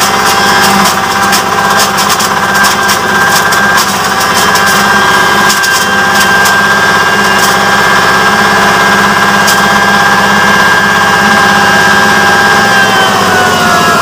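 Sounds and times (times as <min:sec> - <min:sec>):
corn cobs cracking and rattling: 0:00.0 - 0:08.2
diesel engine running: 0:00.0 - 0:14.0
grinding mill whine: 0:00.0 - 0:14.0.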